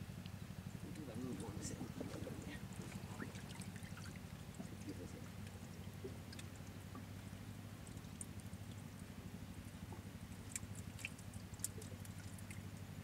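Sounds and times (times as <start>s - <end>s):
water trickling and dripping: 0.2s - 13.0s
small ticks: 7.8s - 9.1s, 9.9s - 12.8s.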